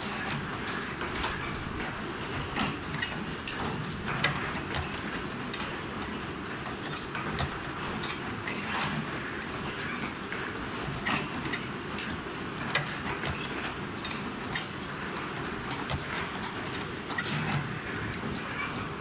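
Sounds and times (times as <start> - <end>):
machine tool clacks bending wire: 0.0 - 19.0
steady mechanical noise: 0.0 - 19.0.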